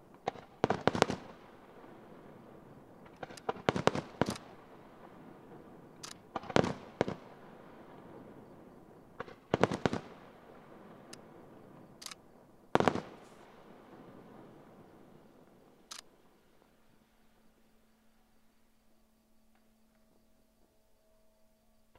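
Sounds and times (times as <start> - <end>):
firework shells bursting: 3.0 - 4.6, 12.8 - 13.5.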